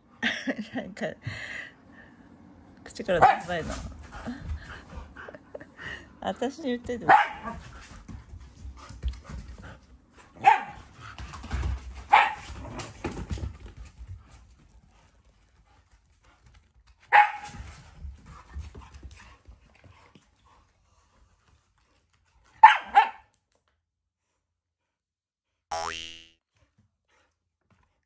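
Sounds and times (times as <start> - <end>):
dog barking sharply: 10.4 - 10.8, 22.6 - 23.2.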